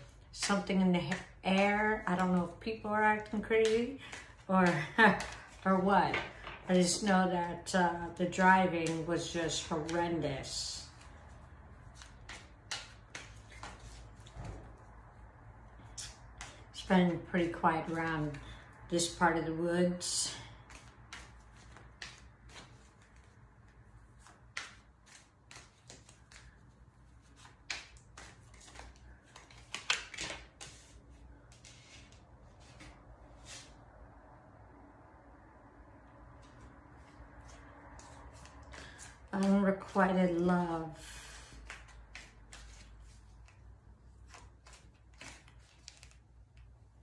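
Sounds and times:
cards being shuffled: 3.2s - 7.0s, 8.6s - 10.2s, 11.0s - 14.7s, 15.8s - 16.7s, 20.4s - 33.7s, 41.5s - 46.8s.

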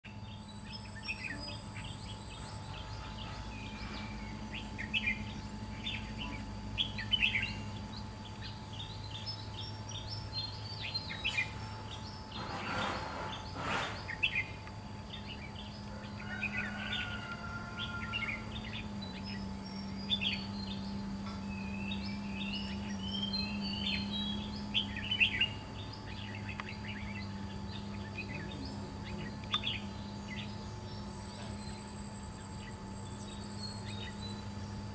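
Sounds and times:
birds chirping: 0.1s - 34.9s
faint steady hum: 0.1s - 34.9s
warbled bird song: 0.1s - 34.9s.

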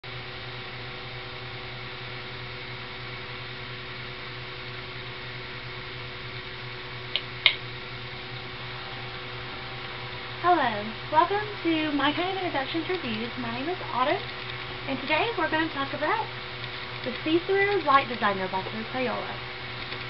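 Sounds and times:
fan-like hiss: 0.0s - 20.0s
low room hum: 0.0s - 20.0s
sharp clicks: 14.1s - 15.3s, 16.6s - 18.3s, 19.8s - 20.0s.

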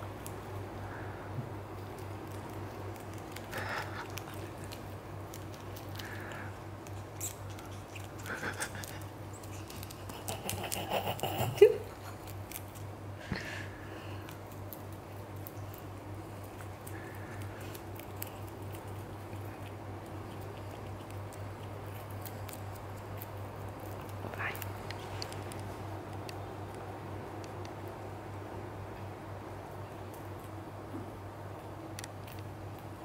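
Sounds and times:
low steady hum: 0.0s - 33.0s
rabbit chewing greens: 0.0s - 33.0s.

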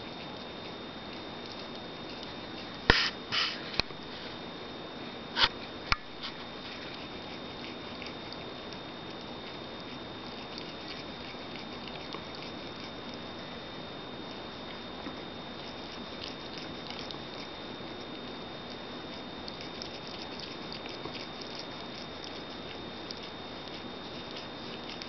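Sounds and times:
thin high whine: 0.0s - 25.0s
steady hiss: 2.8s - 4.4s
cat lapping water: 6.6s - 13.5s, 14.3s - 25.0s.

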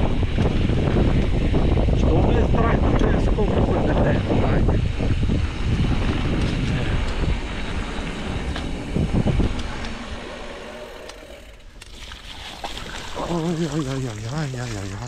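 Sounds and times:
bike clicks and rattles: 0.0s - 2.0s, 4.9s - 12.4s
wind rushing over microphone: 0.0s - 11.0s.

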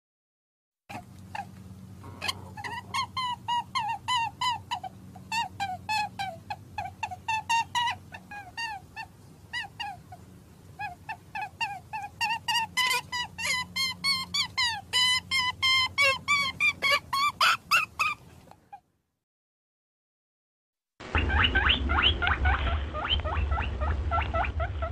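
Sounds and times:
chicken clucking: 0.9s - 10.2s.

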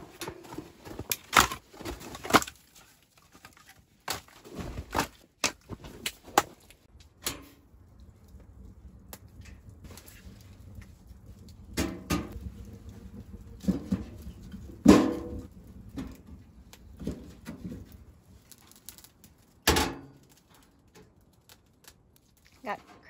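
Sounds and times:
metal clanks and knocks: 13.1s - 18.0s.

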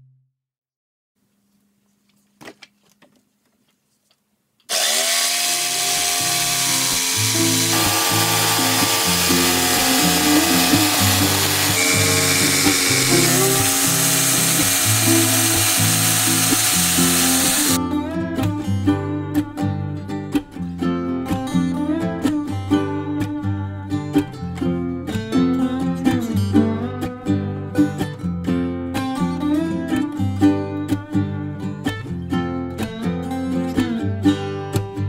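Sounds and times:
jigsaw cutting plywood: 4.7s - 17.8s.

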